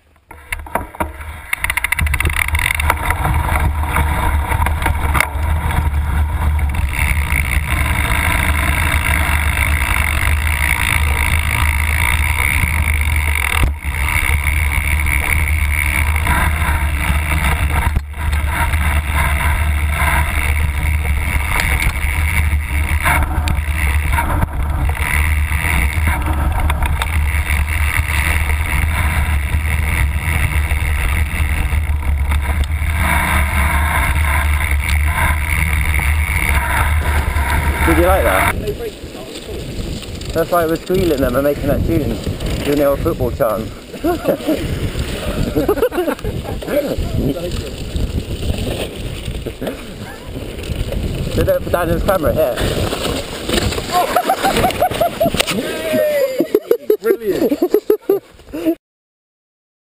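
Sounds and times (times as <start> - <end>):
bike tyres rumbling on rough ground: 0.0 - 58.8.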